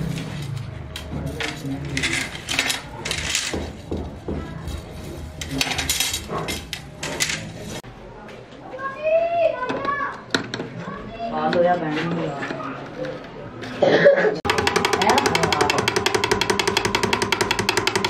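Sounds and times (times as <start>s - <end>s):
metal tubes clinking and rattling: 5.4s - 7.8s.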